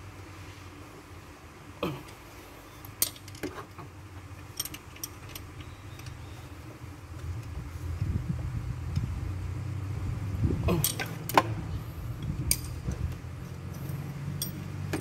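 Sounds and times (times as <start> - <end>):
low steady hum: 0.0 - 15.0
hand tools clinking against metal: 4.5 - 6.1, 10.7 - 11.4, 13.6 - 15.0.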